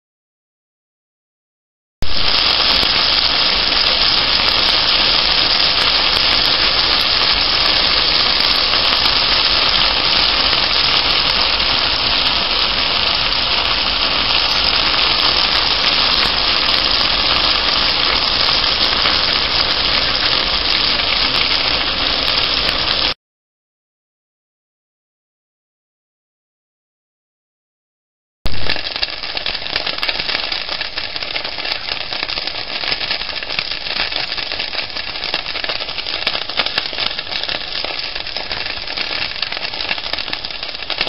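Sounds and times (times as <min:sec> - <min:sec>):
griddle cakes sizzling in skillet: 0:02.0 - 0:23.2, 0:28.5 - 0:41.0.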